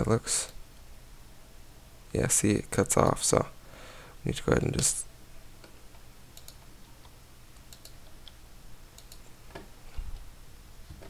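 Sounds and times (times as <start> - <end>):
keyboard and mouse clicks: 5.6 - 8.4, 9.0 - 10.3.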